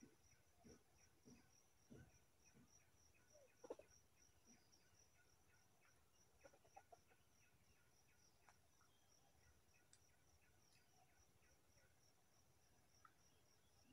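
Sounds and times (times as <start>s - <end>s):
junglefowl clucking: 3.6s - 3.9s, 6.4s - 7.2s.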